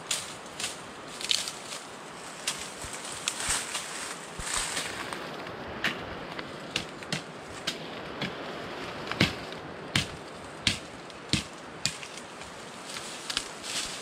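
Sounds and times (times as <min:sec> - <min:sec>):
footsteps crunching on dry leaves: 0:00.0 - 0:05.6, 0:12.0 - 0:14.0
background hiss: 0:00.0 - 0:14.0.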